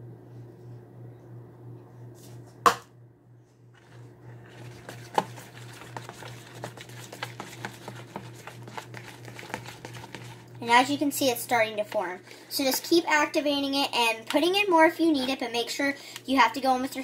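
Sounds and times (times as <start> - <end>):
low steady hum: 0.0 - 17.0
slime being stirred in plastic bowl: 3.7 - 17.0.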